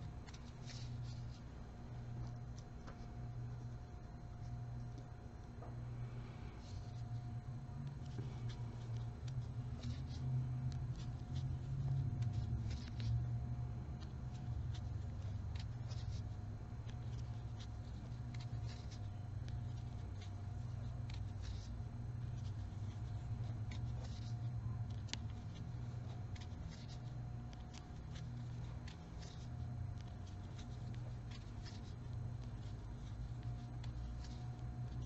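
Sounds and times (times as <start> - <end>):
low hum: 0.0 - 35.0
crochet hook clicking and scratching: 8.0 - 35.0.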